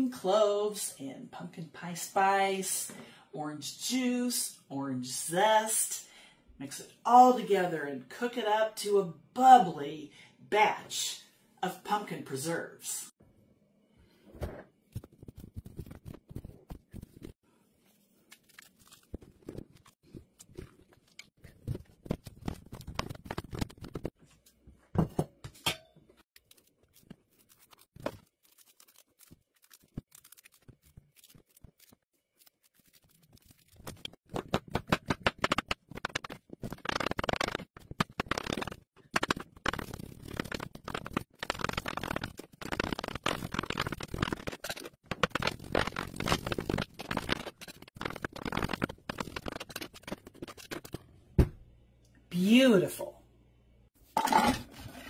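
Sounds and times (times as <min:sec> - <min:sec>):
rapid chopping: 0:34.0 - 0:50.9.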